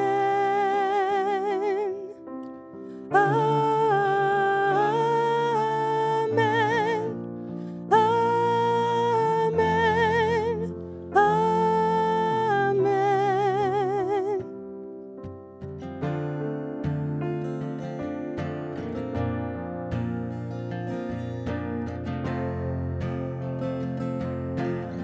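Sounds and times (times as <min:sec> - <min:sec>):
person singing with vibrato: 0:00.0 - 0:02.2, 0:02.9 - 0:14.6.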